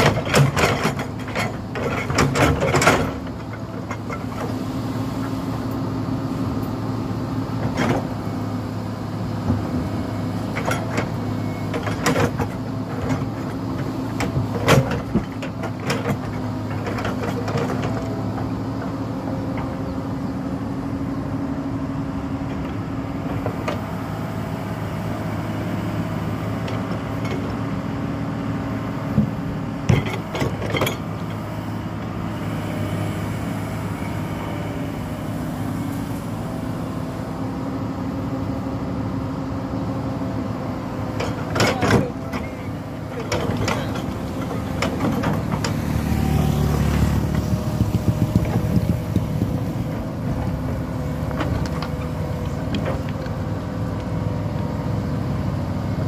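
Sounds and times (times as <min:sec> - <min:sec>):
excavator diesel engine running: 0:00.0 - 0:56.0
bucket clanking on soil and stones: 0:43.2 - 0:50.0.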